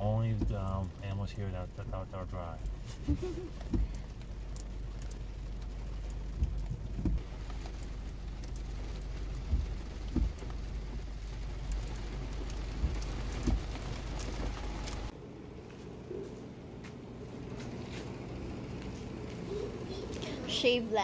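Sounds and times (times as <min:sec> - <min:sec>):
steady rain falling: 0:00.0 - 0:15.2
dull low thumps: 0:06.1 - 0:07.3.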